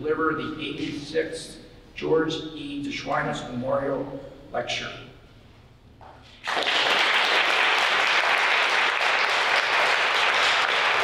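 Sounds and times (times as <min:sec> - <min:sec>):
audience applauding: 0:06.4 - 0:11.0.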